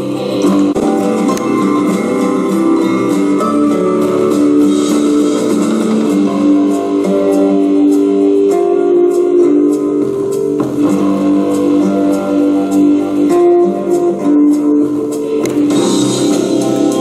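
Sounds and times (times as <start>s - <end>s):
instrumental guitar music: 0.0s - 17.0s.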